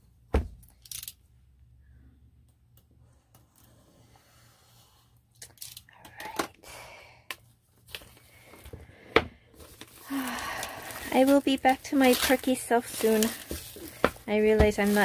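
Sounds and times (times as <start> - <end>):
plastic shrink wrap crinkling: 9.6 - 15.0.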